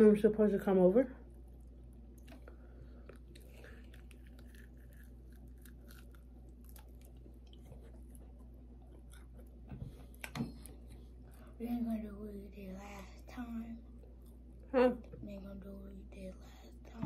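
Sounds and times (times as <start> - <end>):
steady low hum: 0.0 - 17.0
chewing and crunching food: 1.2 - 11.6.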